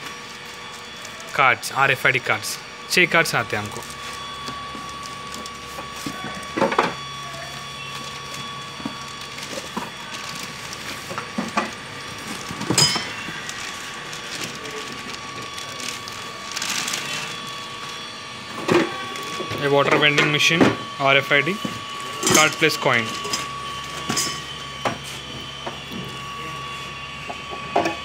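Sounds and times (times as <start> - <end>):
plastic bag rustling: 7.9 - 17.6.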